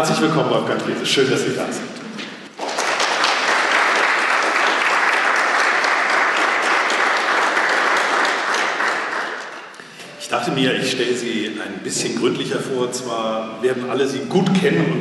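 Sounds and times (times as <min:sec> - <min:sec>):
audience applauding: 0:02.5 - 0:09.8.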